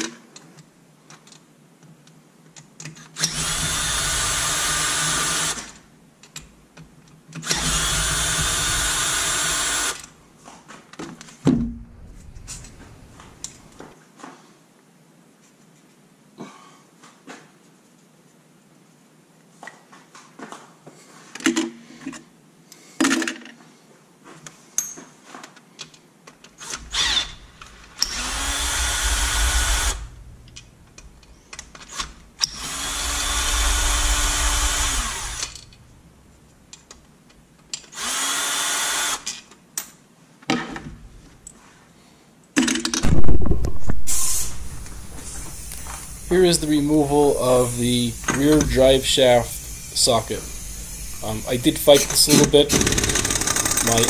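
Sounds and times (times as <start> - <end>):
cordless drill spinning: 3.2 - 5.7, 7.4 - 10.1, 26.6 - 30.6, 31.9 - 35.9, 37.9 - 39.2, 43.9 - 54.0
metal parts and tools clinking: 24.8 - 25.1.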